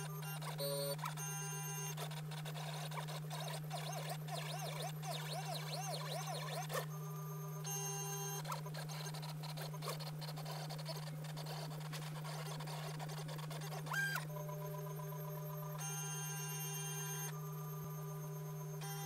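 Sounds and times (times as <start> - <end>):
stepper motors whining: 7.6 - 19.0.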